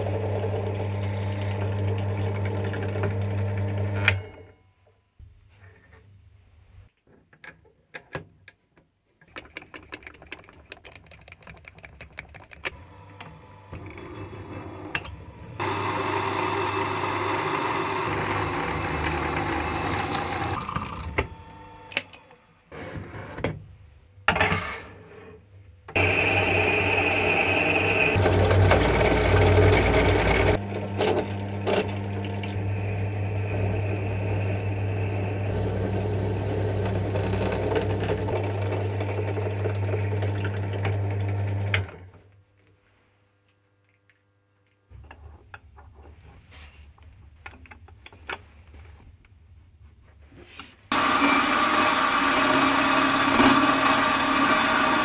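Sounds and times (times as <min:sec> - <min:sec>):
clicks and knocks of handling: 0:07.0 - 0:13.3
drill press drilling metal: 0:12.7 - 0:22.1, 0:26.0 - 0:30.6.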